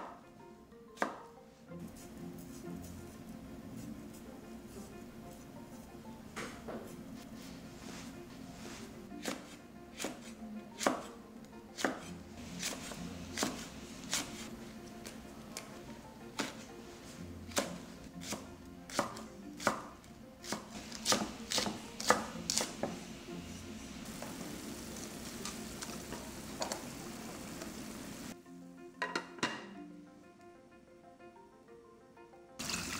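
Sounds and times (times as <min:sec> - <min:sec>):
steady hiss: 0:20.8 - 0:28.4
knife knocking on cutting board: 0:29.0 - 0:29.7.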